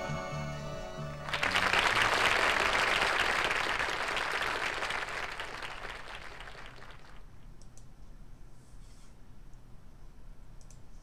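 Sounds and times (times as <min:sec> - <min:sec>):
audience applause: 0:01.2 - 0:07.3
faint clicks: 0:07.5 - 0:08.1, 0:10.6 - 0:11.0.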